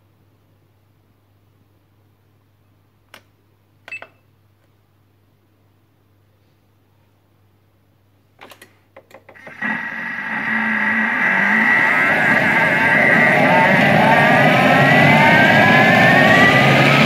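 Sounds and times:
blender motor whirring: 9.4 - 17.0.

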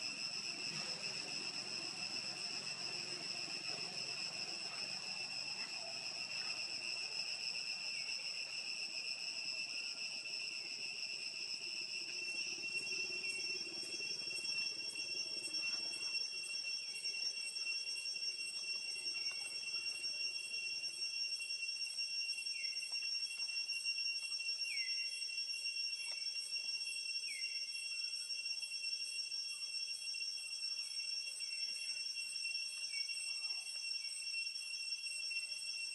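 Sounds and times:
insects droning: 0.0 - 35.9.

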